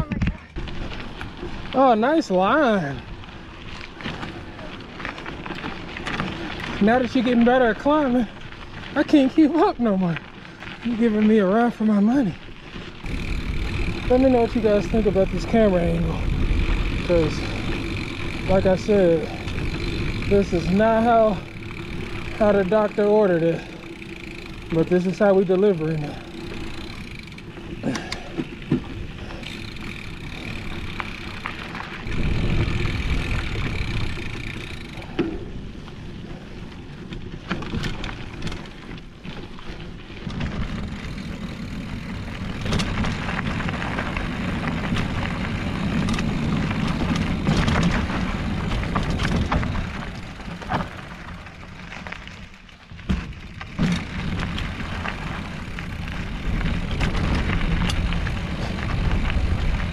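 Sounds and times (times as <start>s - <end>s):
bike clicks and knocks over bumps: 0.0s - 59.9s
bike tyres rolling over dirt and rocks: 0.0s - 59.9s
wind rumble on microphone: 13.0s - 20.4s, 32.0s - 34.4s.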